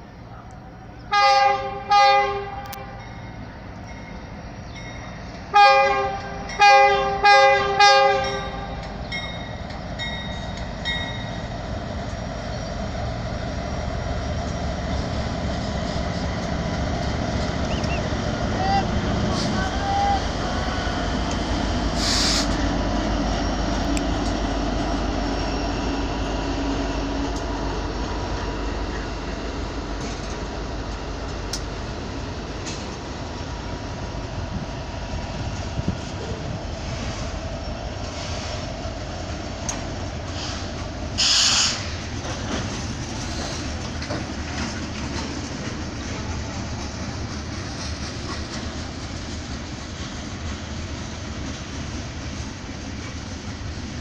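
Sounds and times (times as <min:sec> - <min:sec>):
diesel locomotive engine rumble: 0:00.0 - 0:54.0
train wheels clattering on rails: 0:21.1 - 0:33.9, 0:35.3 - 0:54.0
train wheels squealing: 0:25.3 - 0:26.0, 0:40.4 - 0:42.1.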